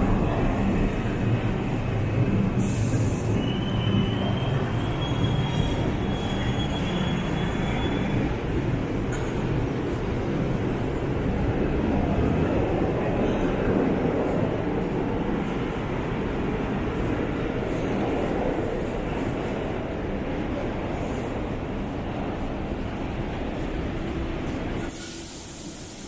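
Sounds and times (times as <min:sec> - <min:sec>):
subway train rumble: 0:00.0 - 0:26.0
high wheel squeal: 0:03.1 - 0:08.5.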